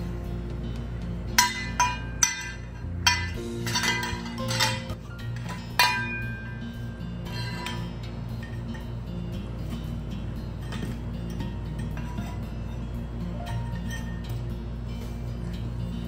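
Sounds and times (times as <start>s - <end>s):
background music: 0.0s - 16.0s
toy pots and pans clinking: 1.4s - 6.2s.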